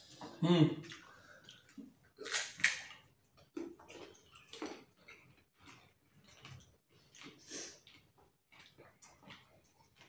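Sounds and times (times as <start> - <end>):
crunching and slurping food: 2.1 - 10.0.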